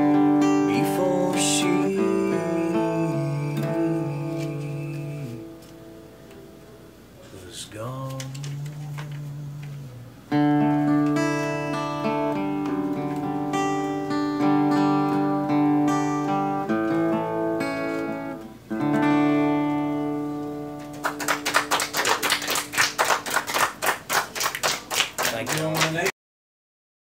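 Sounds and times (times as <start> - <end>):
acoustic guitar strumming: 0.0 - 22.4
people clapping: 20.8 - 26.1.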